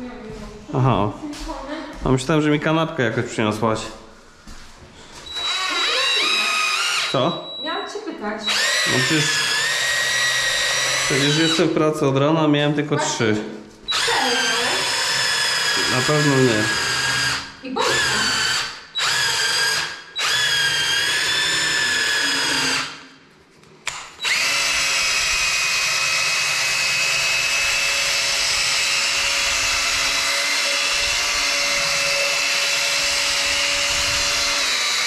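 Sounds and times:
electric drill mixing compound: 0:05.2 - 0:07.5, 0:08.4 - 0:11.9, 0:13.9 - 0:23.1, 0:23.9 - 0:35.0.

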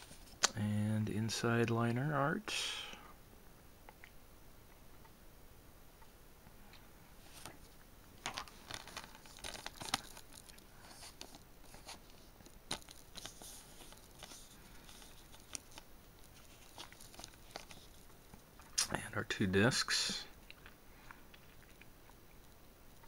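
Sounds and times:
paper rustling: 0:08.2 - 0:18.1.

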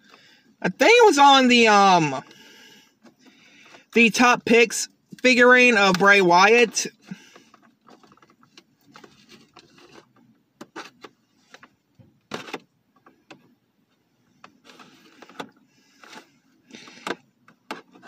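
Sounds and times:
rustling scrapes: 0:07.1 - 0:11.6, 0:14.6 - 0:16.9.

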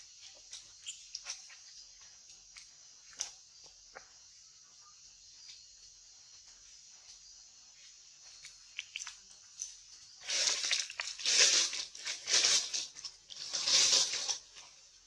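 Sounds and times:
rustling crackling bursts: 0:10.2 - 0:14.6.

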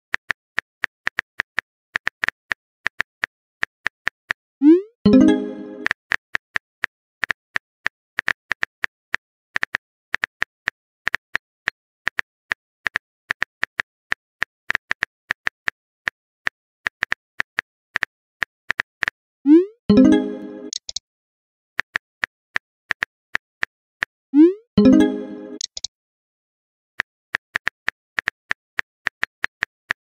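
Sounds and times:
phone keyboard typing clicks: 0:19.9 - 0:21.0, 0:24.8 - 0:25.9.

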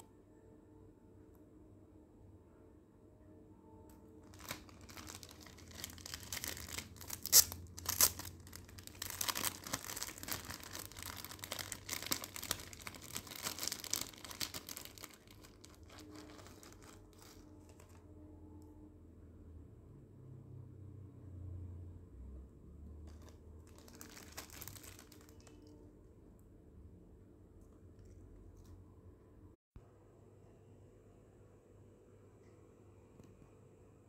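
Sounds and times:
plastic pouches crinkling: 0:04.2 - 0:18.0, 0:23.1 - 0:25.7.

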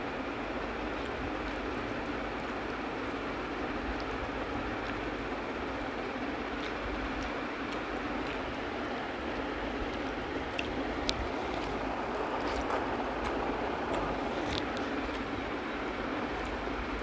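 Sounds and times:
soft clicks of mixing rice by hand: 0:00.4 - 0:17.0
person chewing: 0:06.6 - 0:08.5, 0:09.3 - 0:15.4.

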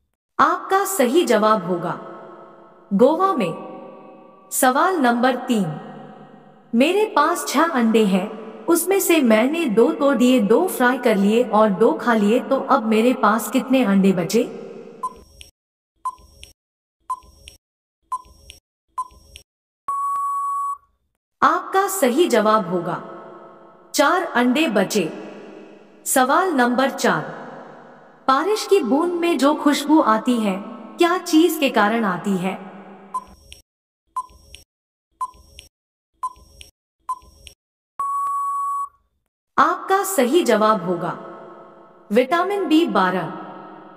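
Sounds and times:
short electronic beeps: 0:15.0 - 0:15.2, 0:19.9 - 0:20.9, 0:33.1 - 0:33.4, 0:38.0 - 0:39.0
long steady beep: 0:19.9 - 0:20.9, 0:38.0 - 0:39.0
short timer beeps: 0:38.0 - 0:39.0.

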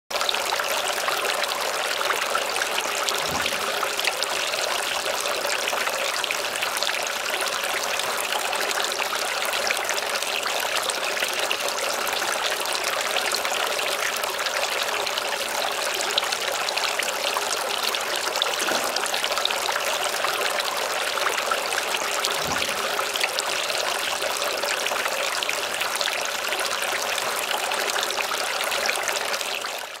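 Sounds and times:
fountain water splashing: 0:00.1 - 0:30.0.

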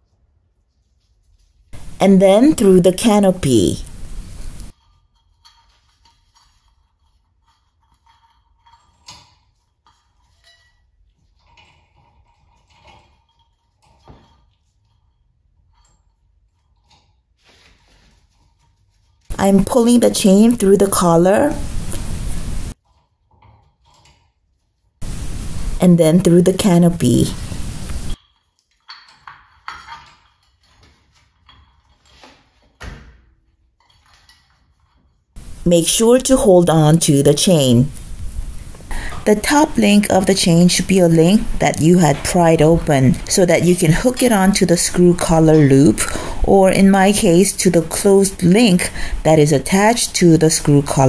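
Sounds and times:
metal chain clinking and rattling: 0:04.8 - 0:10.8, 0:28.2 - 0:32.2.

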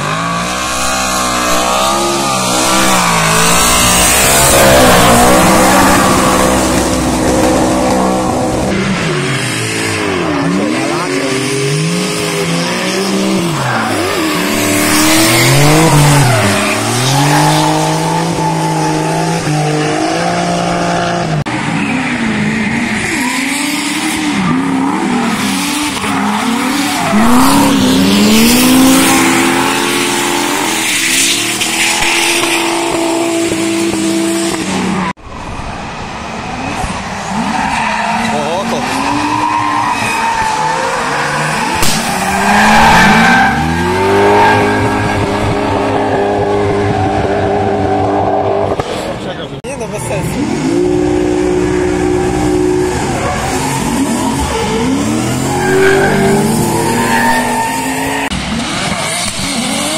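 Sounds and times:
tyres squealing and skidding: 0:00.0 - 0:49.5, 0:50.2 - 0:59.9
car engines revving hard: 0:00.0 - 0:59.9.

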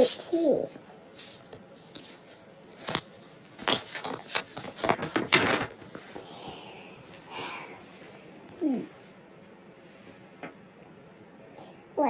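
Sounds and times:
soft swish of paper: 0:00.0 - 0:04.8
paper pages rustling: 0:00.0 - 0:06.2.

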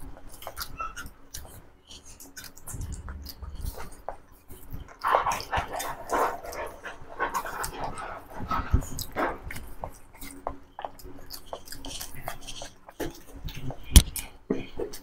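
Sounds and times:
wet chewing and smacking: 0:00.0 - 0:15.0.

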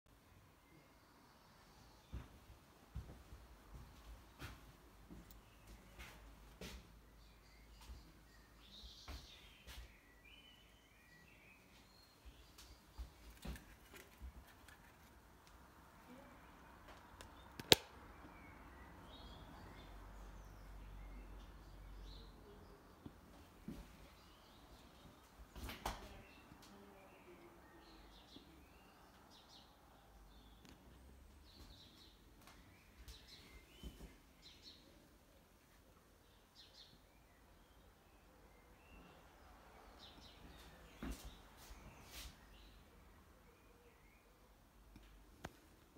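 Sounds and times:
handling knocks and rubs: 0:13.0 - 0:15.2.

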